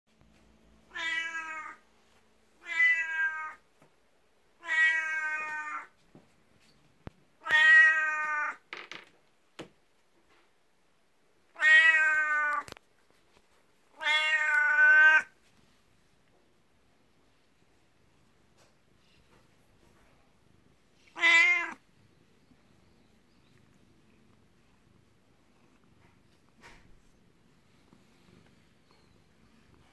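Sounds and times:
cat meowing loudly: 0.9s - 1.8s, 2.6s - 3.6s, 4.6s - 6.0s, 7.4s - 8.6s, 11.5s - 12.7s, 14.0s - 15.3s, 21.1s - 21.8s.

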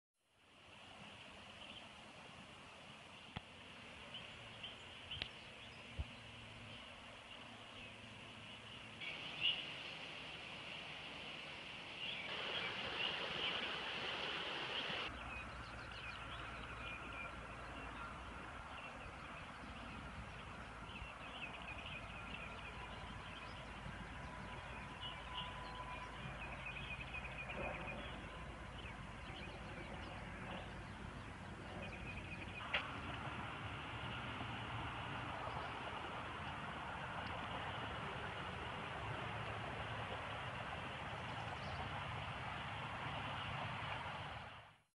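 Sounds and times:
low outdoor hiss: 0.3s - 44.7s
creek rushing: 0.4s - 44.8s
songbirds chirping: 0.8s - 44.1s.

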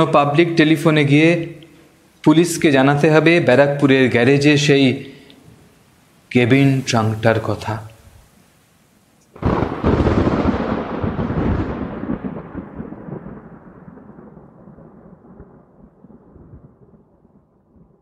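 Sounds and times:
thunderclap and rumble: 9.4s - 18.0s.

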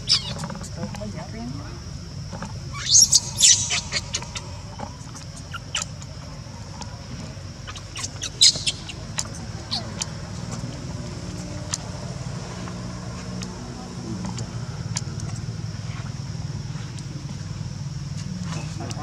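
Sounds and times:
baby monkey shrill squeaking cries: 0.0s - 0.4s, 2.7s - 4.6s, 7.7s - 10.0s.

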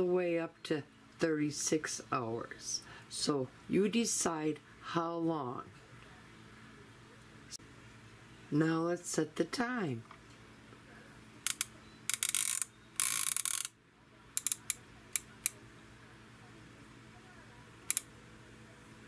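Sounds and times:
dial clicking through detents: 11.4s - 13.7s, 14.4s - 15.6s, 17.9s - 18.1s.

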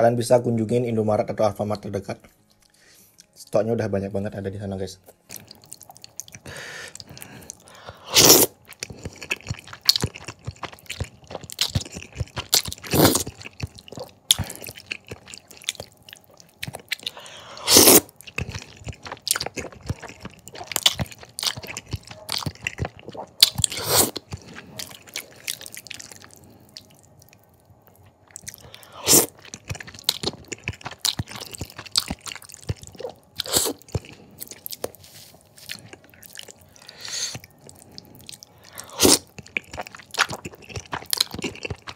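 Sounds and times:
wet chewing and mouth clicks: 5.1s - 41.9s
slurping noodles: 6.5s - 15.7s, 16.9s - 26.5s, 28.5s - 34.4s.

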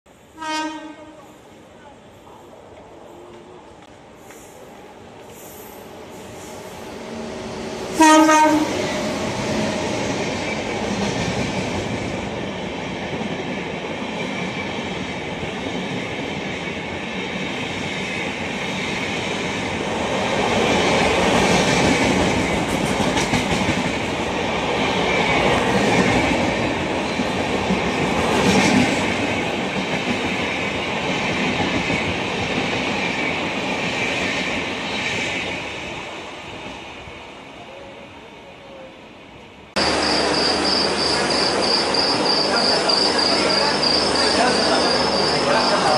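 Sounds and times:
train wheels rumbling on rails: 2.7s - 37.8s, 39.7s - 45.9s
clickety-clack over rail joints: 20.4s - 35.6s.

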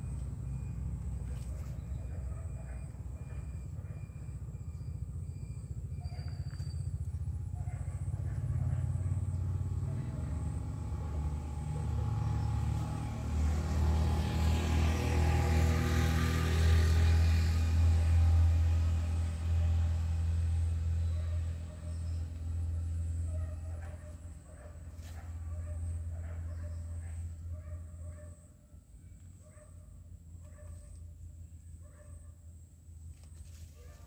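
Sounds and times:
vehicle engine rumbling past: 0.0s - 31.8s.

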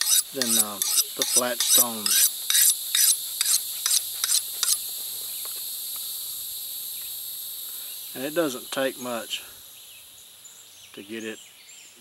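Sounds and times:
blade scraping on sharpening rod: 0.0s - 4.8s
insects chirring: 0.0s - 12.0s.

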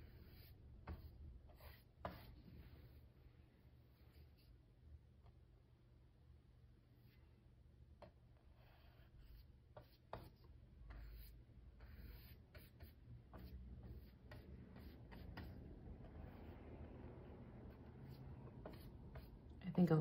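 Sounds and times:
paintbrush strokes on wooden board: 0.0s - 4.5s, 8.5s - 19.5s.

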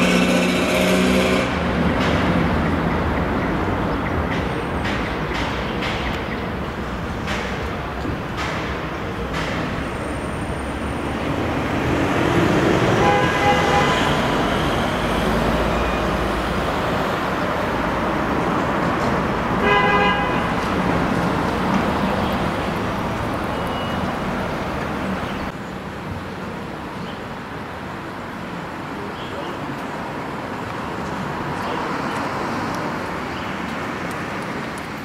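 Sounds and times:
traffic noise: 0.0s - 35.0s
car horn honks: 12.9s - 14.3s, 19.6s - 20.6s.

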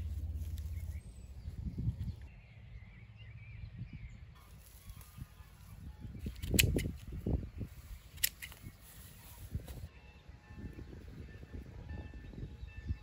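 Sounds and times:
grass rustling and tearing: 0.0s - 1.0s, 4.4s - 9.9s
sharp clicks: 6.2s - 7.2s, 8.0s - 8.8s.

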